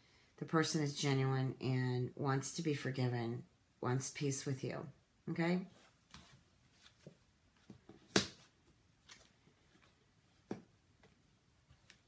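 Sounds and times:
cards snapping and tapping on table: 8.1s - 8.4s.

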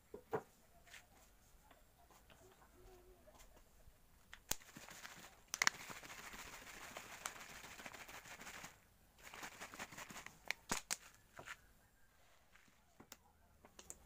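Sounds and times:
liquid sloshing in shaken bottle: 4.6s - 10.4s.

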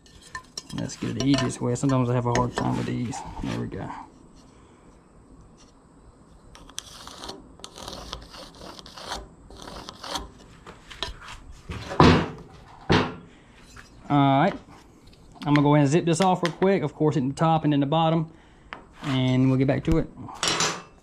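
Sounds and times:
loud knocks on wood: 12.0s - 13.2s.

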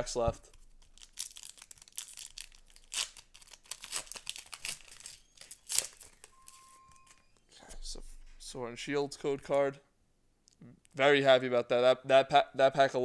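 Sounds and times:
foil wrapper tearing and crinkling: 0.5s - 6.3s.

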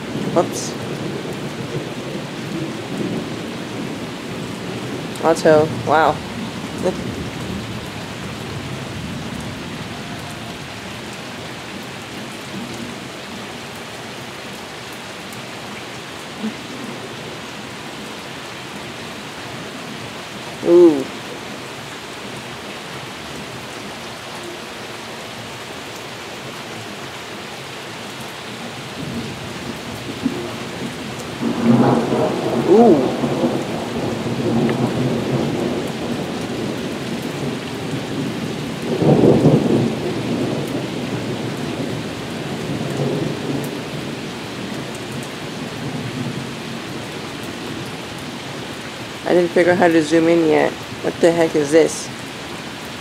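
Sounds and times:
heavy rain hissing: 0.0s - 53.0s
thunder rolling: 30.0s - 42.0s.

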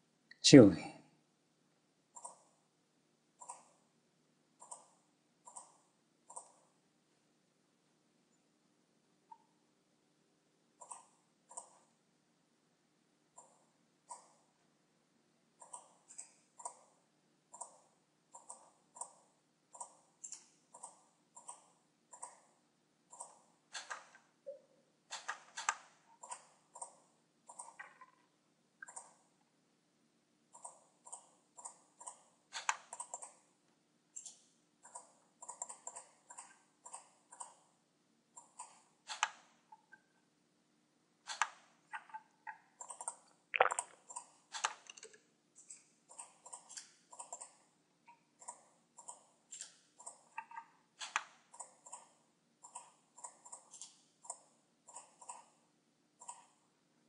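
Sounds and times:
mouse and keyboard clicking: 2.2s - 2.5s, 3.4s - 3.8s, 4.6s - 6.7s, 10.8s - 11.8s, 15.6s - 16.9s, 17.5s - 22.5s, 23.1s - 28.2s, 28.8s - 29.2s, 30.5s - 33.4s, 34.2s - 37.6s, 38.4s - 39.6s, 41.3s - 42.2s, 42.8s - 47.6s, 48.4s - 55.6s, 56.2s - 56.6s.

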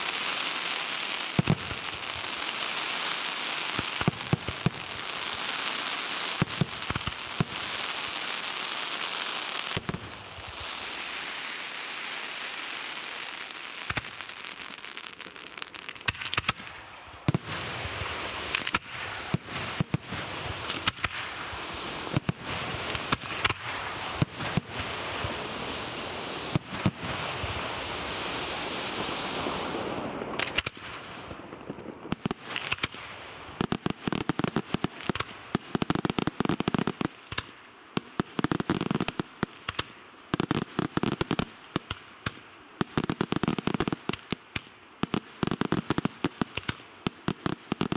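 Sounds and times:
crackling firework hiss: 0.0s - 47.9s
firework shells bursting: 18.4s - 19.0s, 30.3s - 30.9s.

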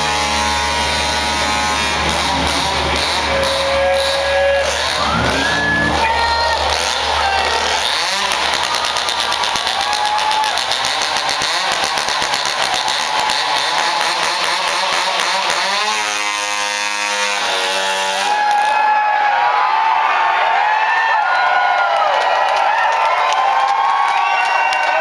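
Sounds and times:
chainsaw revving: 0.0s - 18.8s.

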